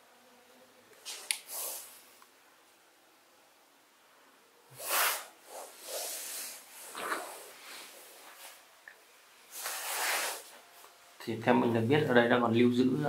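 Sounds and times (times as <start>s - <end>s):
breathy hissing exhales: 4.8s - 8.0s.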